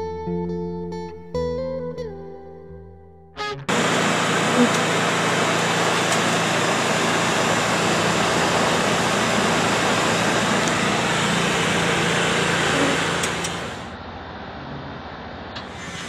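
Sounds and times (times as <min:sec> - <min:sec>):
machine motor humming: 0:03.7 - 0:14.0.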